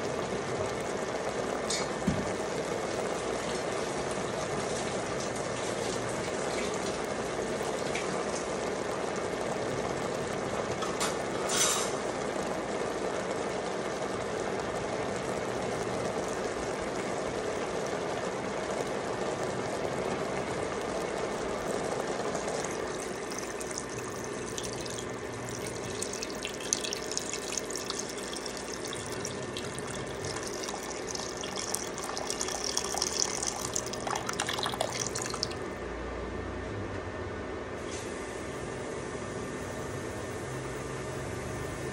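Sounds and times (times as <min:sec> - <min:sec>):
meat hissing and crackling in pot: 0:00.6 - 0:34.2
water splashing into pot: 0:21.6 - 0:35.7.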